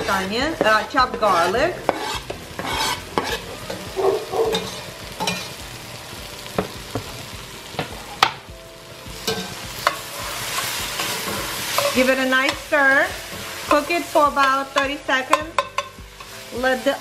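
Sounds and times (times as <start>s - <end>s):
metal spoon scraping a pot: 0.0s - 3.5s
onions and garlic sizzling: 0.0s - 17.0s.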